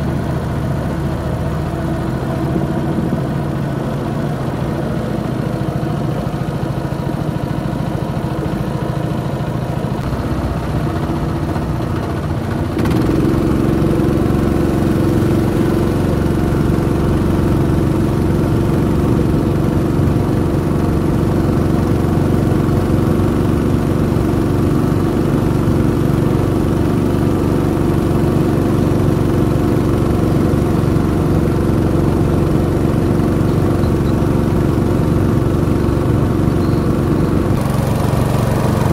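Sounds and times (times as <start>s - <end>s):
outboard motor droning: 0.0s - 38.9s.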